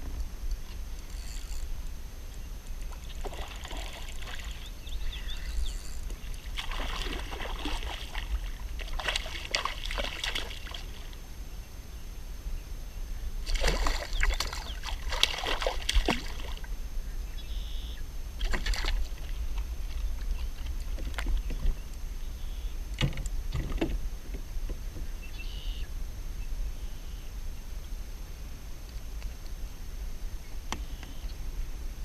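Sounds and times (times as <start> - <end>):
steady low rumble: 0.0 - 32.0
water splashing beside a kayak: 2.8 - 5.4, 6.0 - 11.2, 13.4 - 16.7, 18.4 - 21.8.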